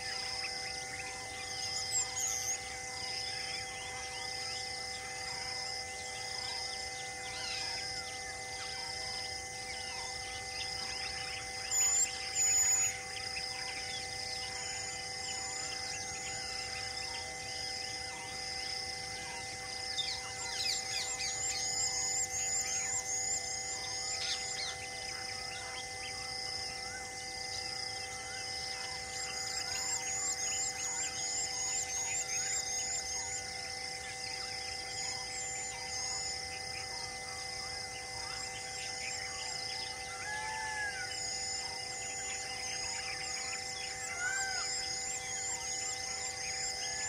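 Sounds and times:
faint steady hum: 0:00.0 - 0:47.0
birds calling: 0:38.2 - 0:47.0
whistled bird notes: 0:38.2 - 0:47.0.

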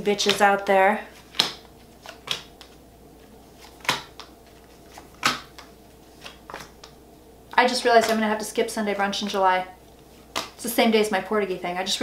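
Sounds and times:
faint room hum: 0:00.0 - 0:12.0
cards clicking and slapping on table: 0:01.2 - 0:02.8, 0:03.6 - 0:07.0, 0:10.3 - 0:10.6.

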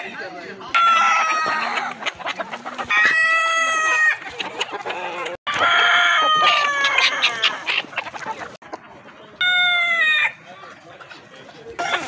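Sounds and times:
hens clucking: 0:00.6 - 0:12.0
roosters crowing: 0:00.7 - 0:08.5, 0:09.4 - 0:10.5, 0:11.8 - 0:12.0.

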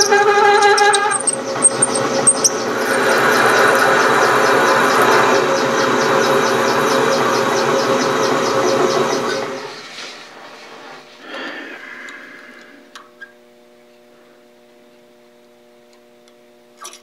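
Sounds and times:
lathe running with fast ticking: 0:00.0 - 0:10.5.

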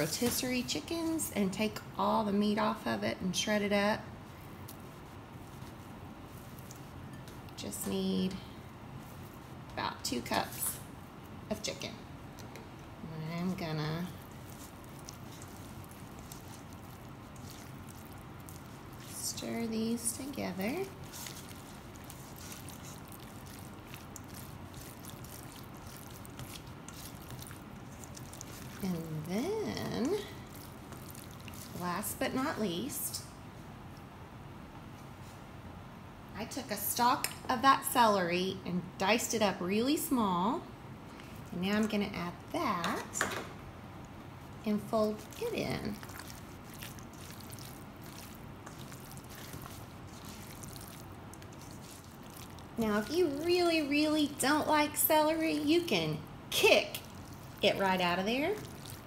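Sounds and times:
wet squishing of food: 0:04.1 - 0:11.5, 0:12.1 - 0:34.1, 0:40.9 - 0:42.8, 0:43.7 - 0:59.0.

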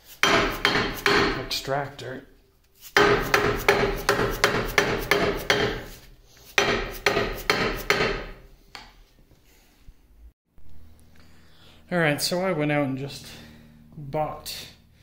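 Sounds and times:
mallet striking metal pulley: 0:00.2 - 0:01.5, 0:03.0 - 0:05.9.

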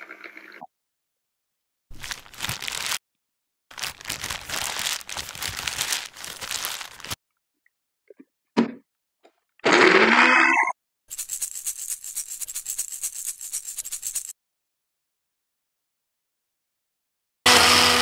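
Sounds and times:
leaves rustling and tearing: 0:01.9 - 0:03.0, 0:03.7 - 0:07.2.

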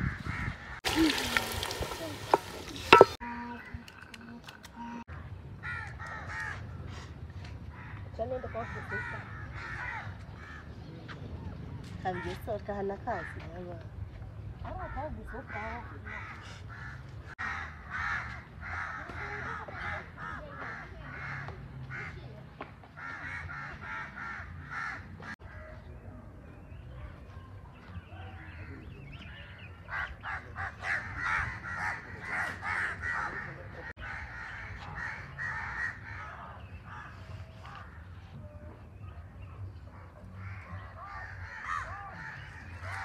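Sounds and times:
birds calling: 0:23.0 - 0:43.0.

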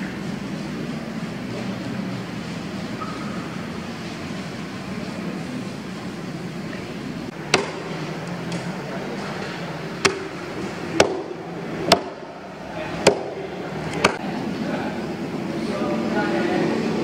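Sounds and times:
knife chopping on wooden block: 0:07.5 - 0:07.9.

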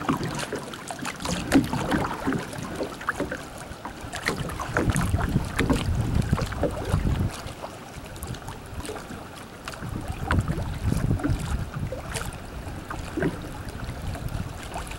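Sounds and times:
water lapping against kayak: 0:00.0 - 0:14.9
wind gusting on microphone: 0:04.5 - 0:07.5, 0:09.8 - 0:14.9.

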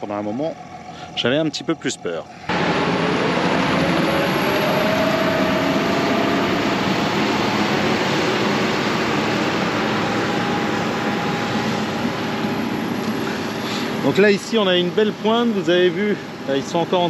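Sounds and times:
crop sprayer engine: 0:00.0 - 0:17.0
faint rising tone: 0:02.2 - 0:14.1.

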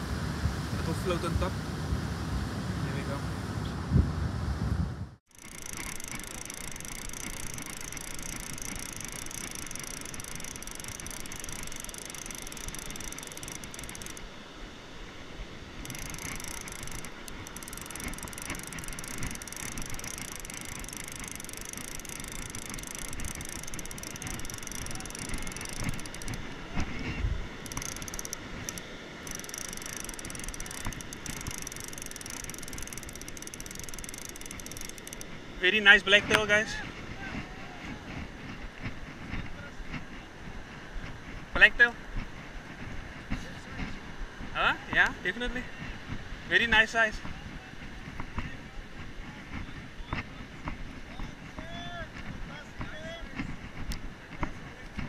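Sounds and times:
fishing reel whirring and clicking: 0:05.3 - 0:14.3, 0:15.8 - 0:26.9, 0:27.6 - 0:35.4.

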